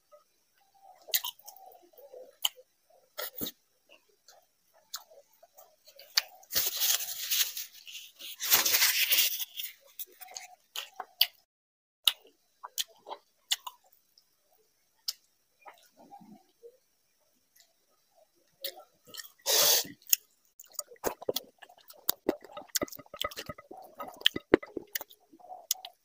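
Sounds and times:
chewing: 0.9 - 2.6, 3.2 - 11.4, 12.1 - 14.0, 18.6 - 26.0.

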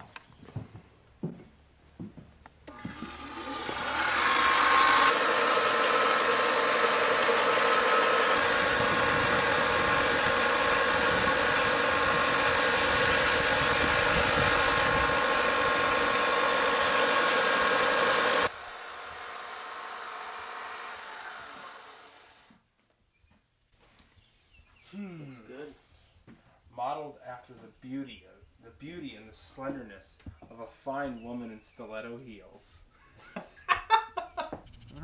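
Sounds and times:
belt sander running: 2.6 - 22.6
wood against sanding belt hiss: 2.7 - 22.5.

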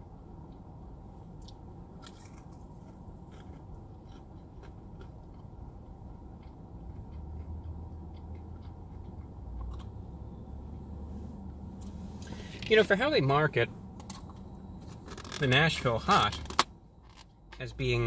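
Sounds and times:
person chewing crunchy food: 1.4 - 10.4
low rumble: 5.2 - 15.5.

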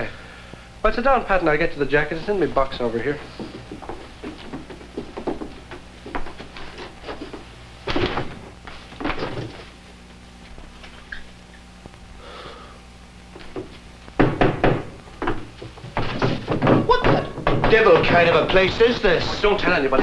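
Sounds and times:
steady low hum: 0.0 - 20.0
wooden box knocks and thuds: 13.6 - 18.6.

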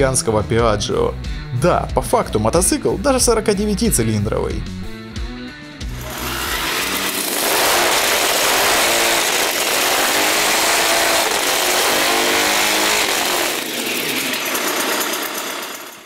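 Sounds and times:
two-stroke engine revving: 5.9 - 16.0.

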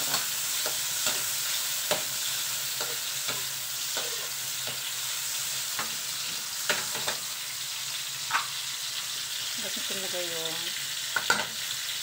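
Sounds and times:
spatula scraping pan: 0.0 - 4.9
vegetables sizzling in oil: 0.0 - 12.0.

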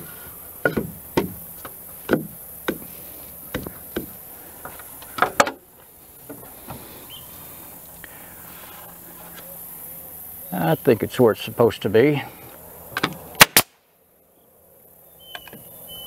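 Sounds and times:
wooden knocks on timber: 0.6 - 2.8.

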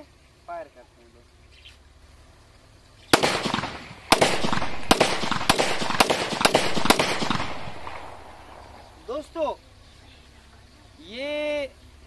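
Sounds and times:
pistol shots with echo: 3.1 - 9.1.

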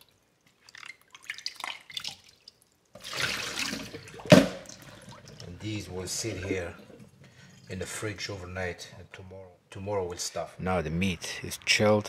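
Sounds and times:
water dripping: 0.0 - 8.8
washing water: 0.0 - 9.2.

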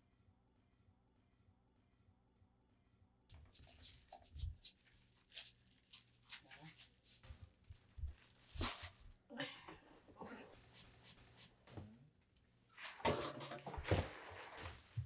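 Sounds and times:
seasonings scattered on cabbage leaves: 4.6 - 9.1.

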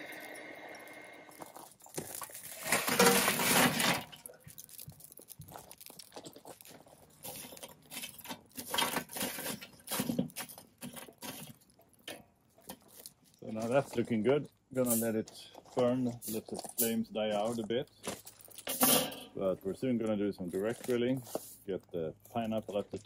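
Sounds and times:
tongs clinking and scraping coals: 0.0 - 23.0
charcoal clattering into grill: 2.4 - 4.2, 18.6 - 19.4.

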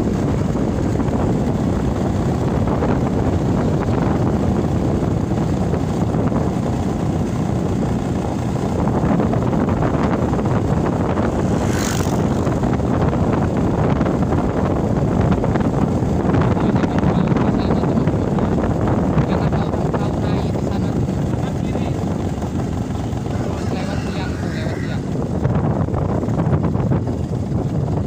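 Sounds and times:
motorcycle engine running: 0.0 - 28.0
wind rushing over microphone: 0.0 - 28.0.

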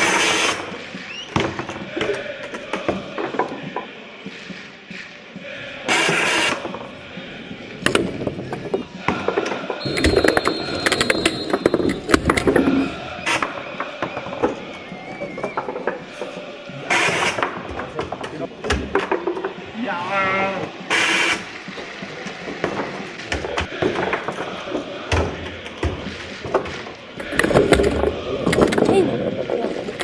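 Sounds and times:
ball clacking off plastic figures: 7.8 - 14.7, 15.3 - 19.6, 22.3 - 30.0
loud hiss-like burst: 20.9 - 21.7.

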